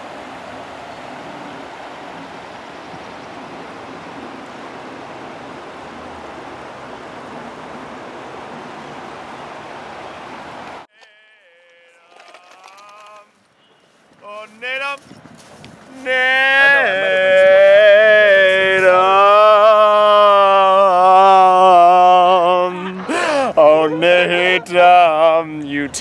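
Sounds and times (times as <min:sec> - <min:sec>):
stream rushing over rocks: 0:00.0 - 0:10.9, 0:15.9 - 0:25.3
person's drawn-out vocal call: 0:15.9 - 0:24.9.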